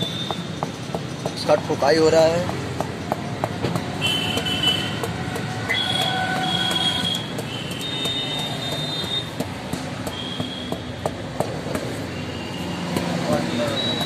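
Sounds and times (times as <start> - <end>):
metal rod tapping on rubber: 0.0 - 14.0
high squealing tones: 5.6 - 9.3.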